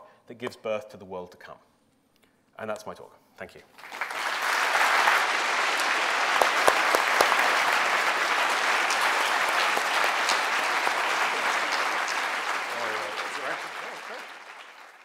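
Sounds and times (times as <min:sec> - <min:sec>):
large audience applauding: 0:03.8 - 0:15.0.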